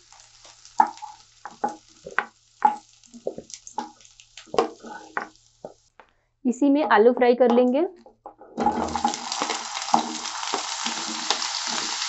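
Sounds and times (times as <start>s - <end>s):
faint sizzle of hot oil: 0.0s - 5.9s, 8.6s - 12.0s
wooden spatula scraping pan: 8.4s - 12.0s.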